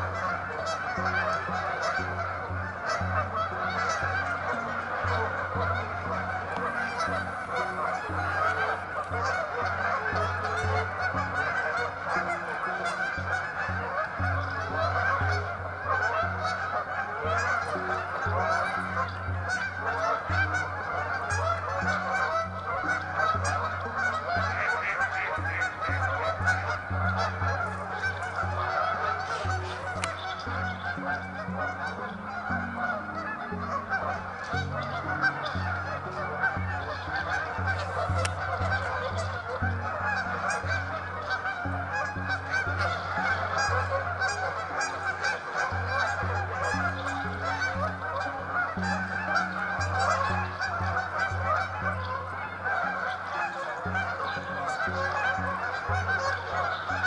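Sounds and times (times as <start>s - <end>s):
geese honking: 0.0s - 57.0s.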